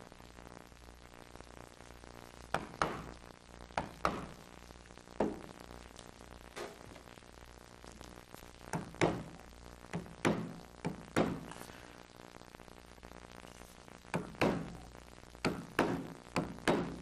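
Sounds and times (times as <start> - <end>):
mallet knocking on gouge handle: 3.8 - 4.4, 8.7 - 9.3, 9.9 - 11.5, 14.1 - 14.8, 15.4 - 17.0.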